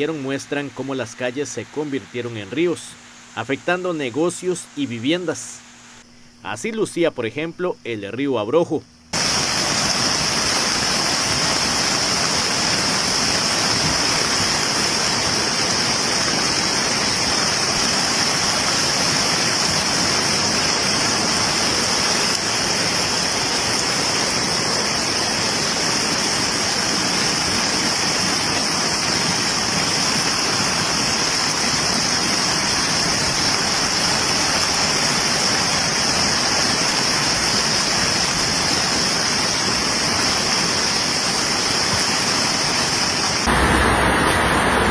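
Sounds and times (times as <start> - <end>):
river water rushing: 9.2 - 44.9.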